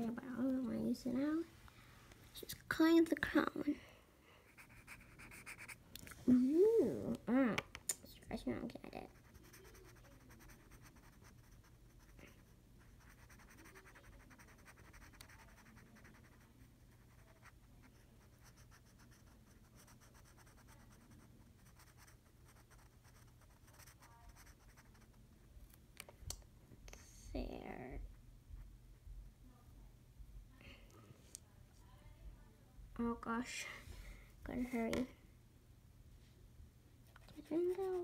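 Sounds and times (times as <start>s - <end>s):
marker scratching on paper: 4.5s - 5.8s, 9.1s - 25.1s, 37.2s - 38.0s.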